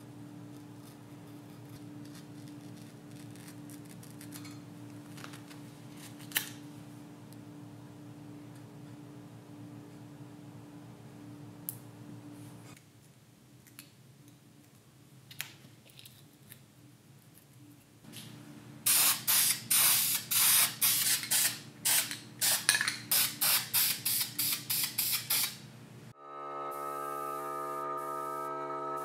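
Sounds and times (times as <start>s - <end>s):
pressurised spray hissing: 18.9s - 25.6s.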